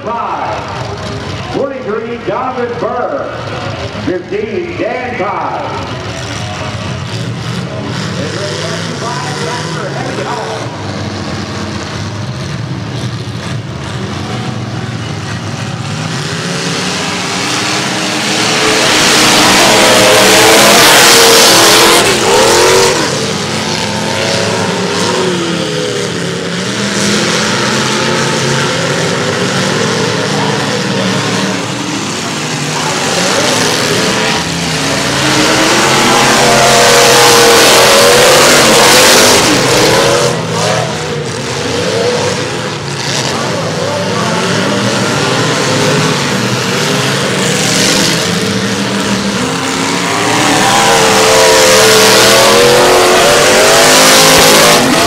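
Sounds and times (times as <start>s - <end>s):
car engines revving: 0.0s - 55.0s.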